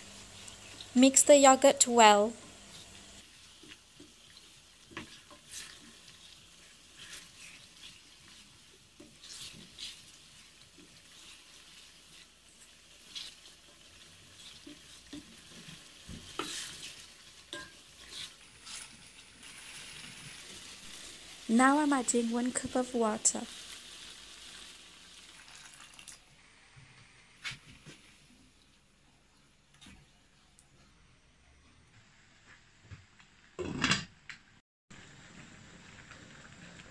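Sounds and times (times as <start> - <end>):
faint sizzle of frying: 0.0 - 33.6, 34.4 - 36.9
wooden spoon scraping pot: 4.4 - 13.5, 14.2 - 19.0.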